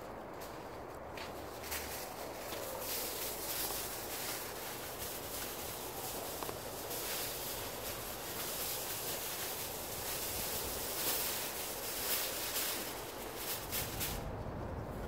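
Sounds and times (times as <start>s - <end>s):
aluminium foil crinkling: 1.7s - 14.2s
wind on microphone: 12.6s - 15.0s.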